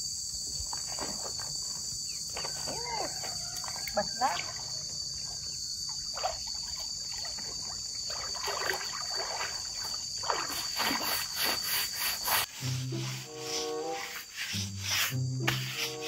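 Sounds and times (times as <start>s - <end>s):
high insect drone: 0.0s - 16.0s
brush scrubbing plastic underwater: 10.2s - 16.0s.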